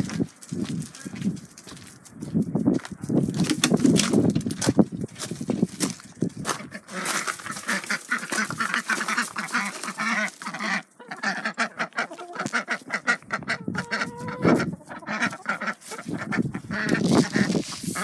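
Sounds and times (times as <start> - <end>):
ducks quacking: 6.5 - 18.0.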